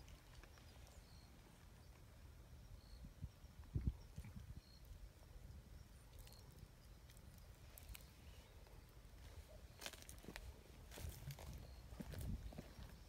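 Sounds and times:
footsteps on leaves and grit: 0:09.8 - 0:12.8.

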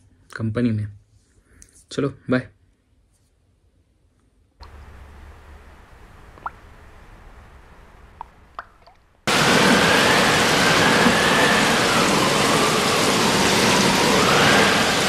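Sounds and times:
heavy rain: 0:04.6 - 0:08.5, 0:09.2 - 0:15.0.

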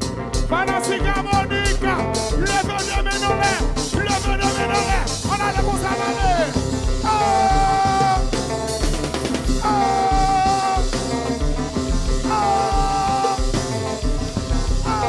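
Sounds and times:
drums and bass beat: 0:00.0 - 0:15.0
electric guitar: 0:00.0 - 0:15.0
person singing: 0:00.5 - 0:08.6, 0:09.6 - 0:11.4, 0:12.2 - 0:14.0.

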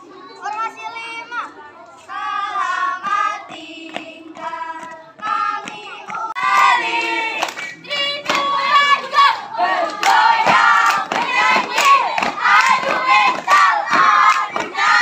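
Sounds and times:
children chanting in unison: 0:02.1 - 0:15.0
hand claps: 0:02.6 - 0:08.8, 0:09.8 - 0:15.0.

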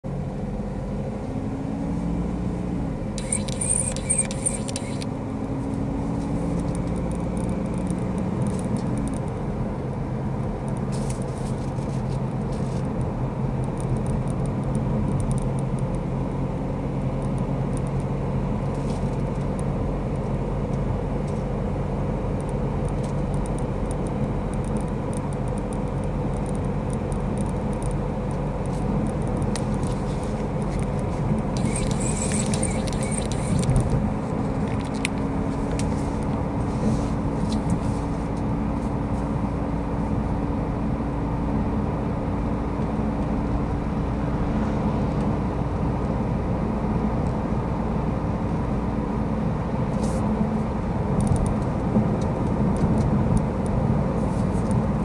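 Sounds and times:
car engine and road noise: 0:00.0 - 0:55.0.

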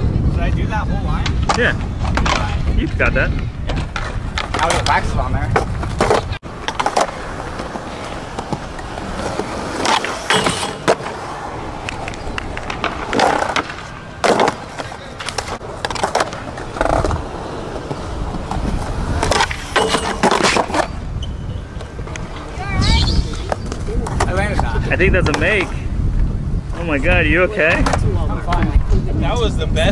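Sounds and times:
skateboard wheels rolling on concrete: 0:00.0 - 0:29.9
skateboard pops and clacks: 0:03.7 - 0:07.7, 0:08.3 - 0:11.2, 0:11.8 - 0:17.2, 0:27.7 - 0:28.8
skateboard sliding on metal rail: 0:06.5 - 0:21.0.

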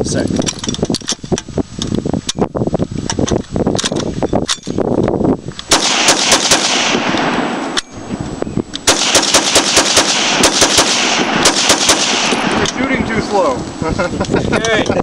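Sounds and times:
machine gun single shots: 0:05.7 - 0:07.8, 0:08.9 - 0:12.8.

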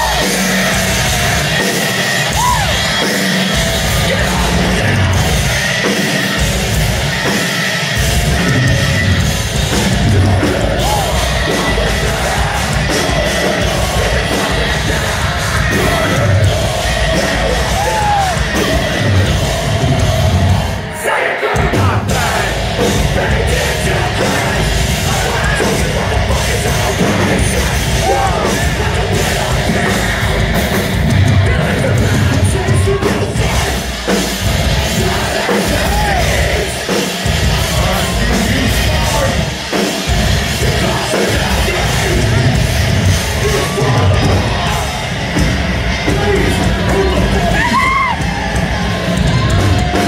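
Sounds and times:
metalcore band playing live: 0:00.0 - 0:50.0
screamed vocals: 0:02.2 - 0:03.0, 0:13.6 - 0:22.5, 0:46.1 - 0:50.0.

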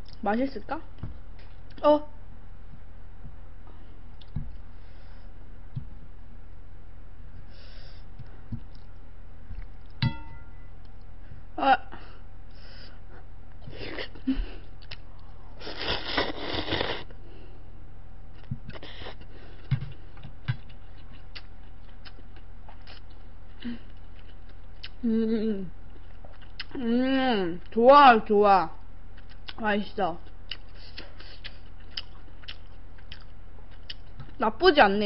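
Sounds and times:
metal bowl ringing: 0:10.0 - 0:10.8
slurping noodles: 0:15.6 - 0:17.1
chewing sounds: 0:19.9 - 0:25.0, 0:25.9 - 0:26.8, 0:29.1 - 0:34.4.

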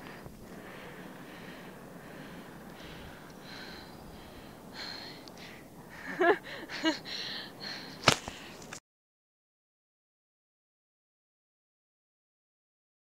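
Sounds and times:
person laughing: 0:05.9 - 0:07.3.

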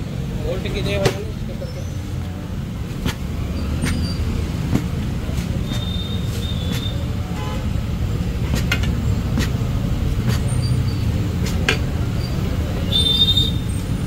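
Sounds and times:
tyre lever clicking and scraping rim: 0:11.4 - 0:11.9.

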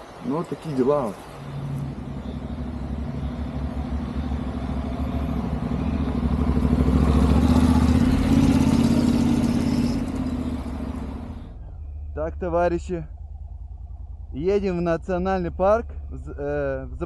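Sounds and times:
motorcycle engine running: 0:01.8 - 0:12.5.

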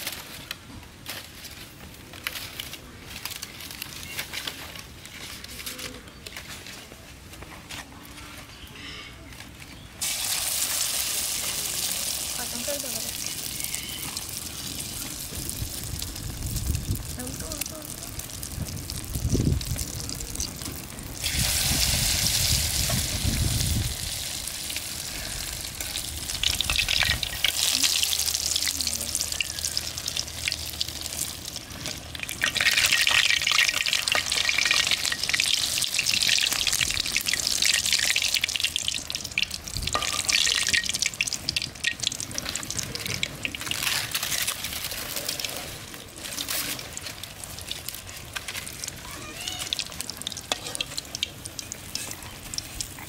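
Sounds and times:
oil sizzling in a wok: 0:10.0 - 0:53.0
metal spatula clicking and scraping: 0:50.5 - 0:53.0.

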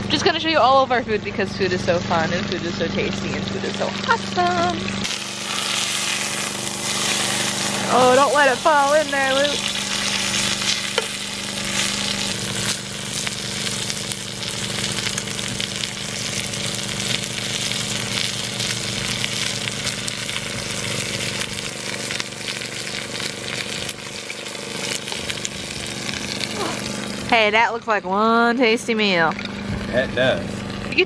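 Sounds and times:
fine crackling: 0:03.2 - 0:27.5
steak sizzling in a skillet: 0:03.4 - 0:27.4.

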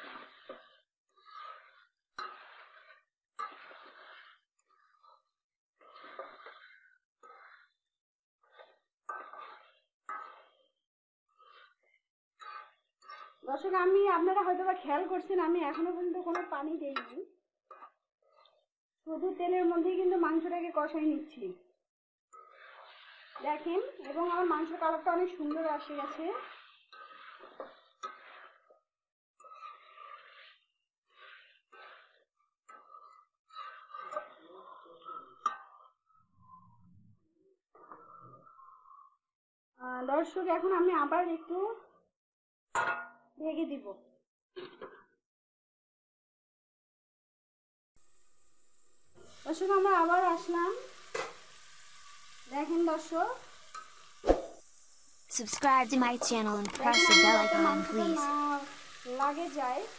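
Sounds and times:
metal spatula scraping metal pan: 0:00.0 - 0:05.2, 0:05.8 - 0:07.8, 0:08.5 - 0:10.6, 0:12.4 - 0:13.4, 0:22.4 - 0:28.7, 0:29.4 - 0:32.1, 0:49.6 - 0:54.2, 0:56.8 - 0:59.9
chicken frying in hot oil: 0:22.4 - 0:28.6, 0:48.0 - 0:56.6, 0:58.4 - 0:59.9.

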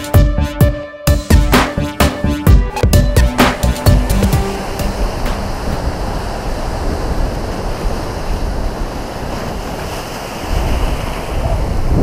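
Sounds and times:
waves washing over rocks: 0:03.5 - 0:12.0
wind on microphone: 0:04.6 - 0:12.0.

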